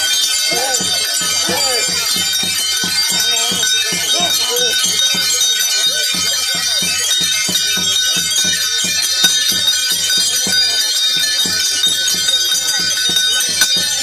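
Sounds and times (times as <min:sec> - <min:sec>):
jingling bells: 0:00.0 - 0:14.0
steady drumbeat: 0:00.0 - 0:14.0.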